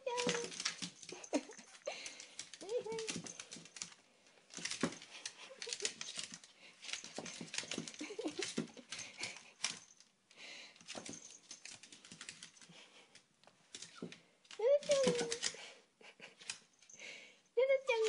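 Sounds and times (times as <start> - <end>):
dog claws clicking on wood floor: 0.1 - 10.0, 10.8 - 15.6.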